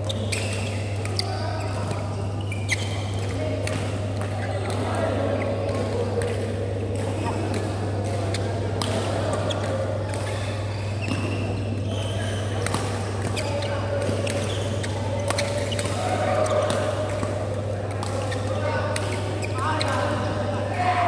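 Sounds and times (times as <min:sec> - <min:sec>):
shoe squeaks on court: 0:00.0 - 0:03.5, 0:09.3 - 0:17.0, 0:18.1 - 0:20.2
rackets hitting shuttlecock: 0:00.0 - 0:20.3.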